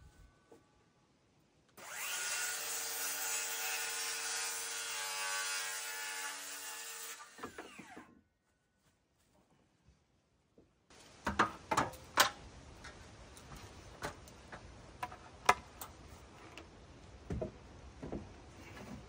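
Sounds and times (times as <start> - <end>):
faint steady hiss: 8.8 - 19.0
dull wooden knocks: 17.2 - 19.0.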